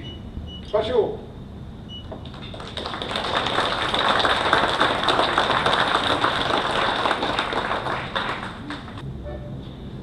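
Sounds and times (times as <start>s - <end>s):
audience applauding: 2.2s - 9.0s.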